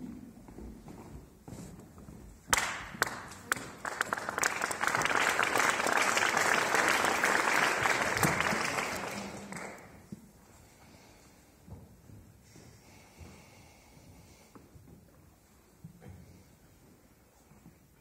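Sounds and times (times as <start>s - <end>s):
audience applauding: 2.5s - 10.0s.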